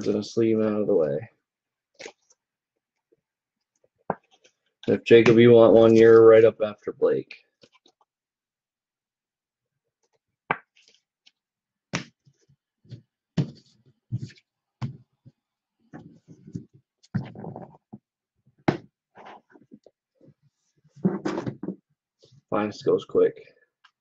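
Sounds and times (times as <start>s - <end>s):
cards and boxes knocking: 13.4s - 15.0s.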